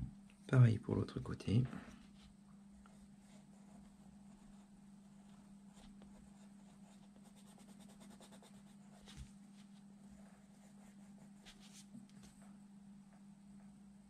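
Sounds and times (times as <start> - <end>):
steady low hum: 0.0 - 14.0
pencil scratching on paper: 2.9 - 11.9.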